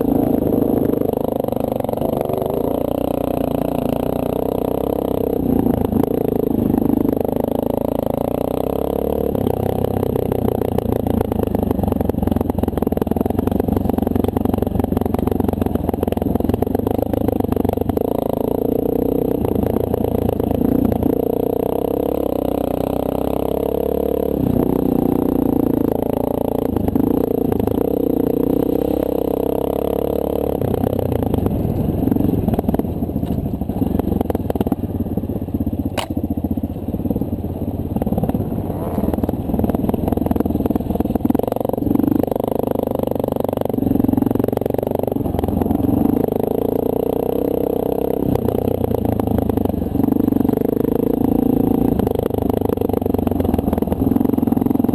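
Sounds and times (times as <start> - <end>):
motorcycle engine revving: 0.0 - 54.9
sharp click: 36.0 - 36.2.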